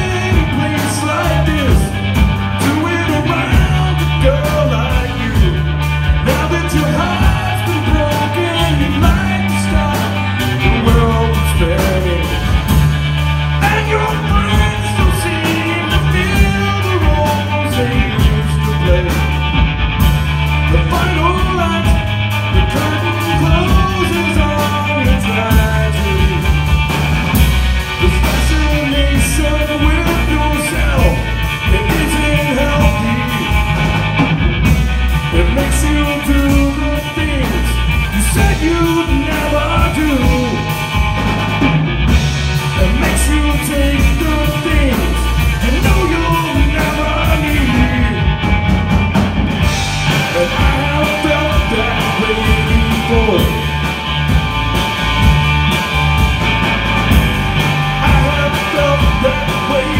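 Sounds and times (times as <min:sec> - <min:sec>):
man singing: 0:00.0 - 0:12.8, 0:13.5 - 0:19.7, 0:20.5 - 0:33.9, 0:35.2 - 0:41.0, 0:42.6 - 0:48.6, 0:49.6 - 0:54.1, 0:57.7 - 0:59.9
drum kit: 0:00.0 - 0:59.9
electric bass: 0:00.0 - 0:59.9
electric guitar: 0:00.0 - 0:59.9.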